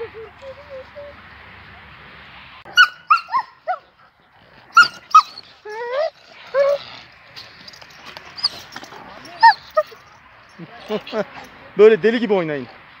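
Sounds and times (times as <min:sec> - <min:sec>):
dogs yelping and whining: 0:00.0 - 0:01.2, 0:02.6 - 0:11.6.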